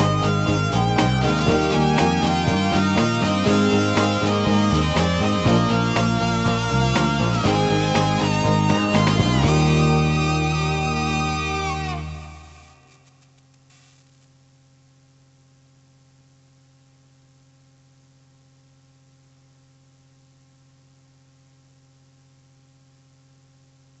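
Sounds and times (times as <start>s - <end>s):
music: 0.0s - 13.3s
faint electrical hum: 12.2s - 24.0s
light hiss: 12.8s - 14.4s.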